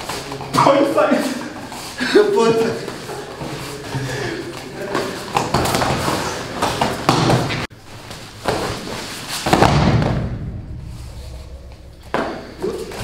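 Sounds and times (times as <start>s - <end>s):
sharp knocks and scuffs: 4.9s - 10.4s
heavy thud on gym mats: 5.4s - 7.7s, 9.4s - 10.7s.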